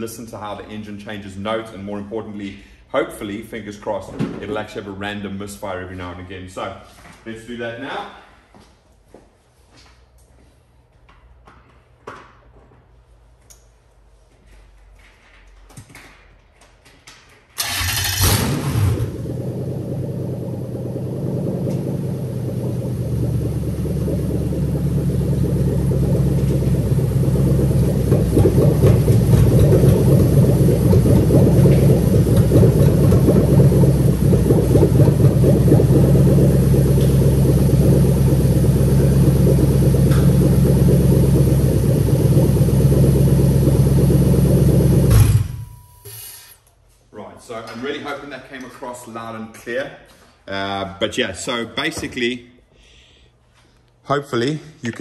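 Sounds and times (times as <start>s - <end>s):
engine idling with misfires: 17.6s - 46.0s.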